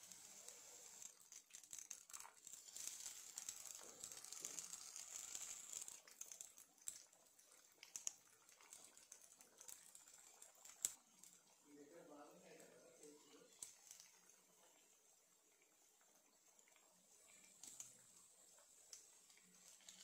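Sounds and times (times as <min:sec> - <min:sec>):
oil sizzling and crackling: 0:00.0 - 0:20.0.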